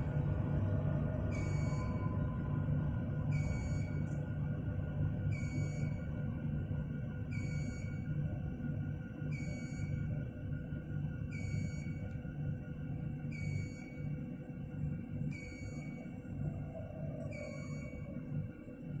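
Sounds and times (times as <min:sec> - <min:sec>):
low drone: 0:00.0 - 0:07.3, 0:16.3 - 0:19.0.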